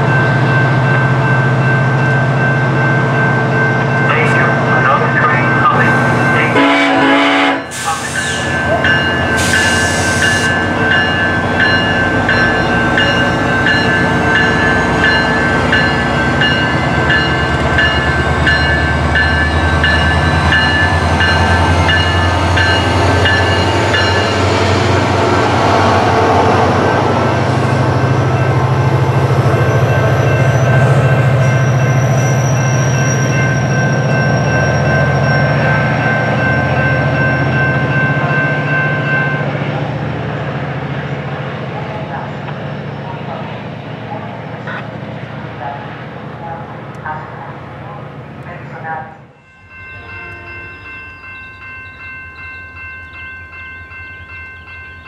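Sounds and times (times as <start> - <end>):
locomotive bell ringing: 0.0 - 43.3, 48.5 - 55.0
train horn blast: 6.4 - 8.4.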